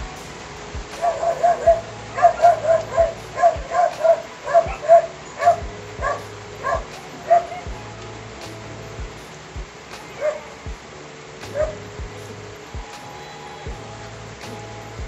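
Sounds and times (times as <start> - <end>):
background music with low beat: 0.0 - 15.0
high yelping calls: 0.9 - 7.7.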